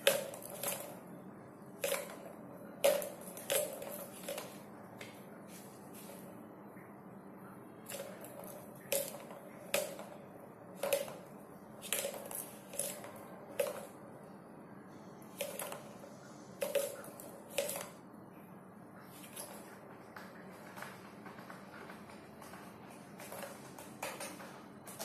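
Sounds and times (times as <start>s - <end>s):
plastic ball clicking around track: 0.0s - 1.0s, 1.8s - 5.2s, 7.9s - 14.0s, 15.3s - 16.0s, 16.6s - 18.0s.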